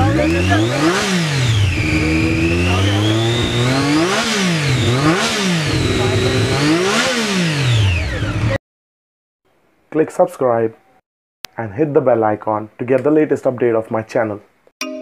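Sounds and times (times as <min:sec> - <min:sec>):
motorcycle engine revving: 0:00.0 - 0:08.6.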